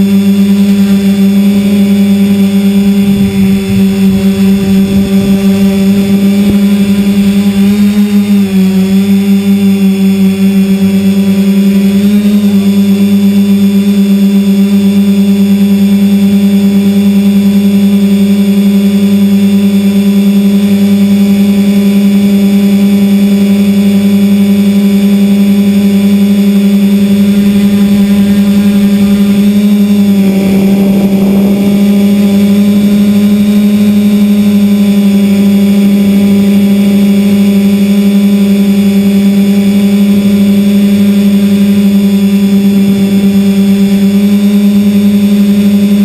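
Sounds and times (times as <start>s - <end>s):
drone motors and propellers humming: 0.0s - 46.0s.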